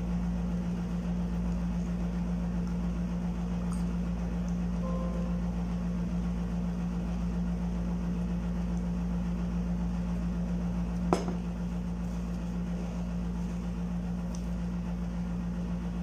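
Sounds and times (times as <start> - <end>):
low mechanical hum: 0.0 - 16.0.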